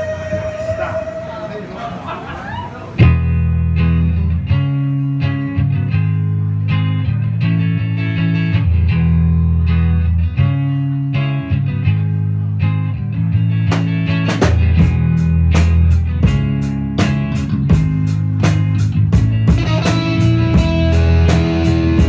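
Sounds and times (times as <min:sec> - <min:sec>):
live band music: 0:03.0 - 0:22.0
loud low bass line: 0:03.0 - 0:22.0
drum strokes: 0:13.7 - 0:22.0.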